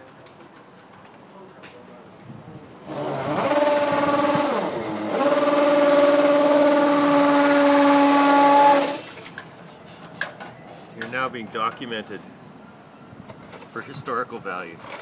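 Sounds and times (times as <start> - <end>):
cordless drill motor whine: 2.9 - 9.2.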